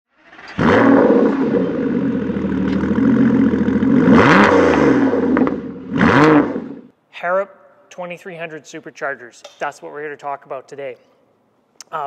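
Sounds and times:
engine revving: 0.1 - 6.9
car engine running: 0.6 - 6.8.

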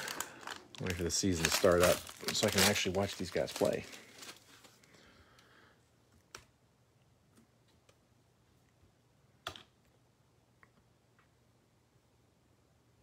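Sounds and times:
foil wrapper crinkling: 0.0 - 4.9.

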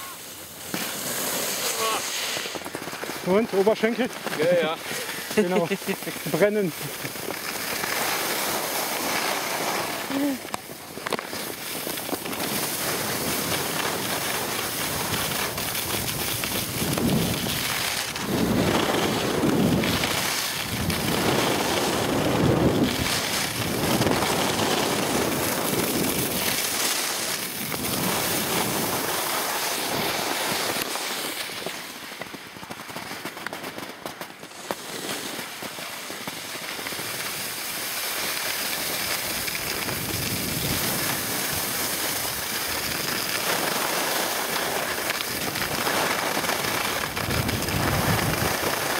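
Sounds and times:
skis scraping on snow: 0.0 - 33.6, 34.4 - 48.9
wind on microphone: 14.8 - 26.5, 39.3 - 43.1, 46.9 - 48.9.

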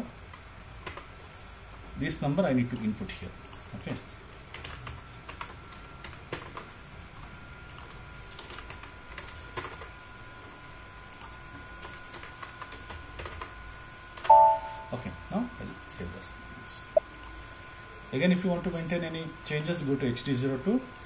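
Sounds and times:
keyboard typing: 2.7 - 6.7, 7.6 - 9.9, 11.1 - 13.5
faint steady high tone: 14.3 - 15.2.

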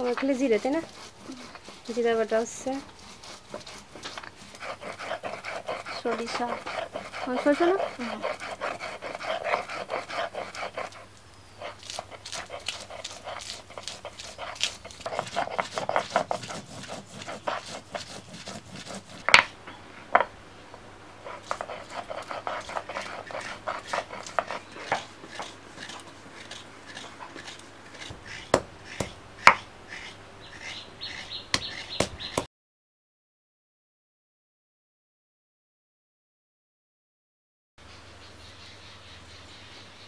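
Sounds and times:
stone roller grinding on stone slab: 0.0 - 20.3, 21.2 - 32.5.

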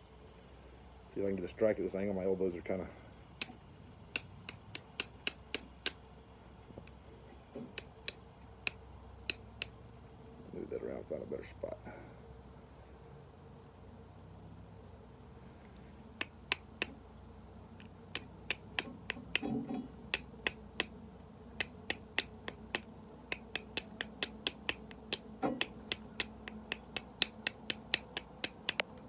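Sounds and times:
fire steel striking stone clicks: 4.2 - 6.0, 17.8 - 20.9, 21.6 - 28.9.

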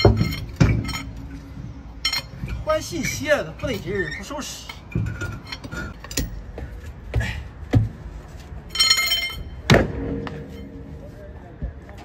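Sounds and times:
metal knocks and thuds: 0.0 - 2.6, 4.8 - 8.0, 9.6 - 10.6
ringing metallic clink: 2.0 - 2.4, 8.7 - 9.7.

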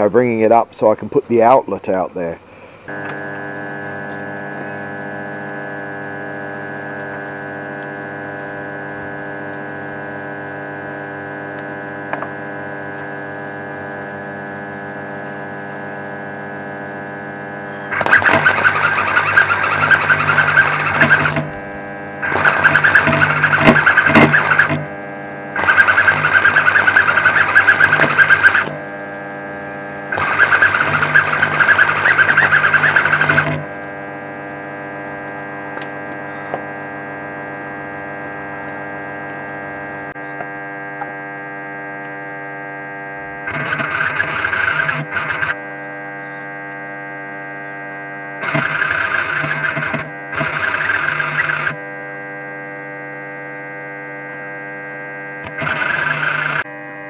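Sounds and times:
electrical hum: 0.0 - 57.0
welding arc crackling: 17.9 - 24.9, 25.6 - 34.0, 43.5 - 45.6, 48.4 - 51.8, 55.4 - 56.6.

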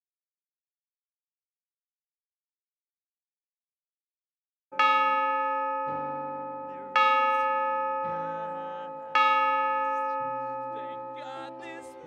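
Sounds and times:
bell-like chime notes: 4.8 - 12.0.

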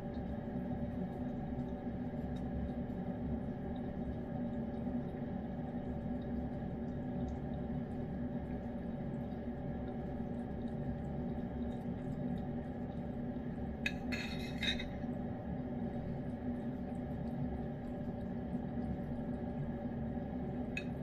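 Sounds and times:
appliance humming: 0.0 - 21.0
metal spoon scraping a bowl: 13.9 - 14.9.

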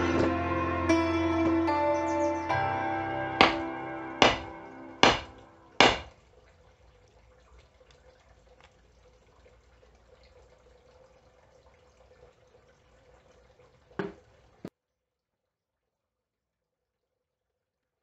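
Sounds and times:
background music: 0.0 - 6.0
axe knocking on wood: 3.4 - 3.6, 4.2 - 6.1.

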